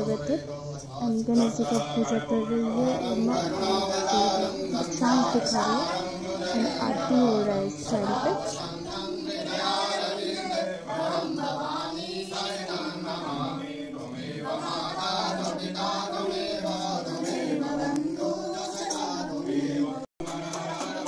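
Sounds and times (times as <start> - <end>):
man chanting a hymn: 0.0 - 11.0.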